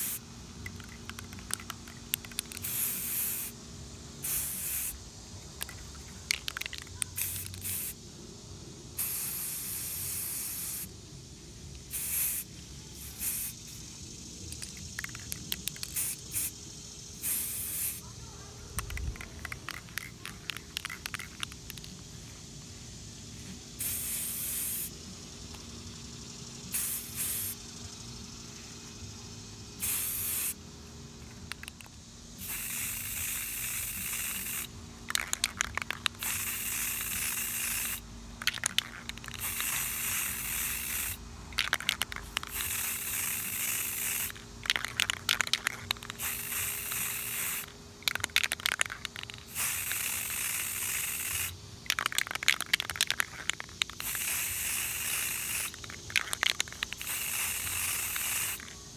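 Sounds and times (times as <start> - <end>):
spray paint can hissing: 0.0 - 3.6, 4.2 - 8.0, 8.9 - 11.0, 11.6 - 22.4, 23.0 - 25.7, 26.7 - 27.7, 29.8 - 30.6, 31.2 - 58.9
crackly clicks: 0.6 - 2.8, 5.6 - 7.8, 18.8 - 22.0, 35.1 - 36.5, 38.4 - 39.8, 41.6 - 43.2, 44.2 - 47.0, 48.0 - 49.5, 51.9 - 54.2.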